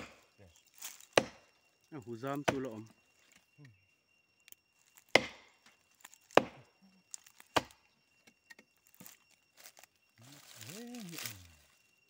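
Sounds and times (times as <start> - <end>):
chopping into tree trunk: 0.0 - 1.5, 2.4 - 2.8, 4.9 - 9.2.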